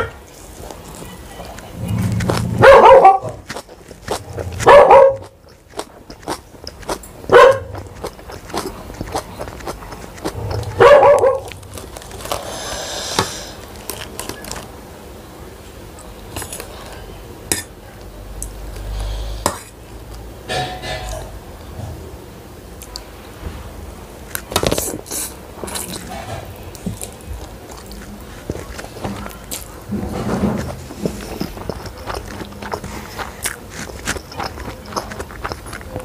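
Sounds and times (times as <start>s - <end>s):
dog barking: 2.6s - 3.4s, 4.6s - 5.3s, 7.3s - 7.8s, 10.7s - 11.5s
chewing clicks: 3.3s - 12.3s, 30.9s - 36.0s.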